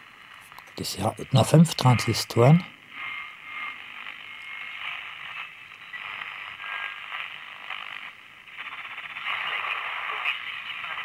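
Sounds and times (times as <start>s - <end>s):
radio static hiss: 0.0s - 11.0s
faint radio whistles: 3.0s - 8.0s.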